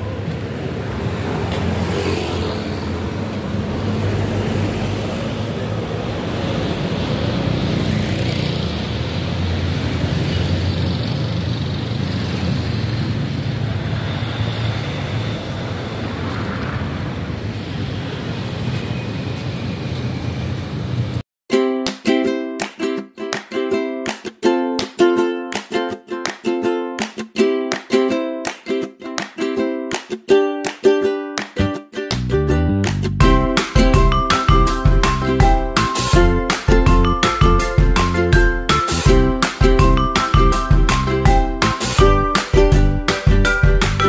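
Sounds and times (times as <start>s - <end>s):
cars and motorcycles passing: 0.0s - 21.2s.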